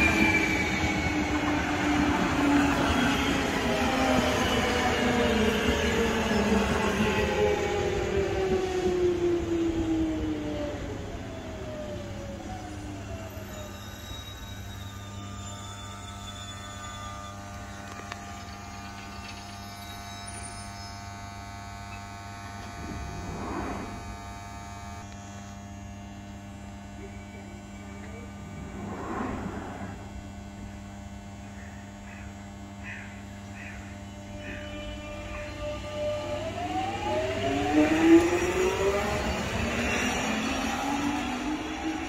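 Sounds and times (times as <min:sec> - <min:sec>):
train electric hum: 0:00.0 - 0:42.0
rushing noise: 0:22.7 - 0:24.4, 0:28.2 - 0:30.3.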